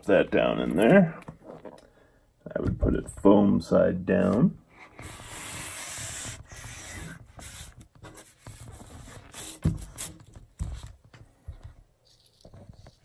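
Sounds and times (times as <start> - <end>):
foam board rubbing and scraping: 4.8 - 10.2.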